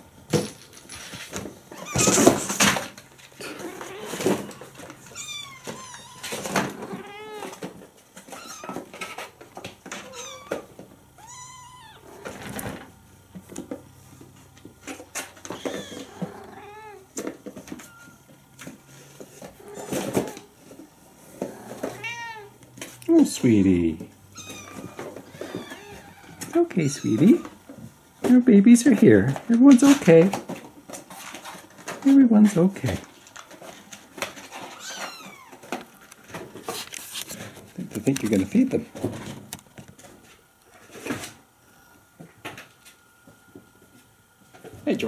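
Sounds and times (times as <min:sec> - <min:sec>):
cat and kittens meowing: 0:01.7 - 0:02.5, 0:03.4 - 0:12.8, 0:15.2 - 0:18.2, 0:19.5 - 0:20.5, 0:21.4 - 0:22.6, 0:24.3 - 0:27.6, 0:34.5 - 0:35.8.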